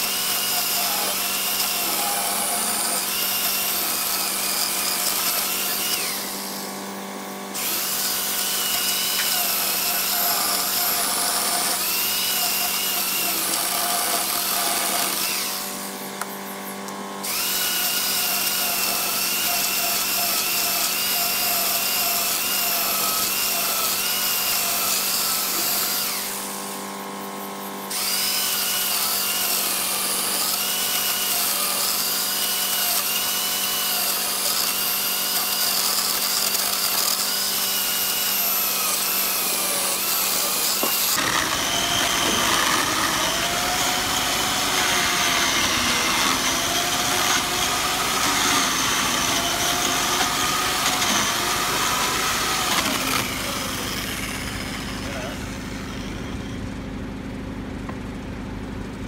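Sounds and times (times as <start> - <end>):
electric chainsaw cutting wood: 0.0 - 57.0.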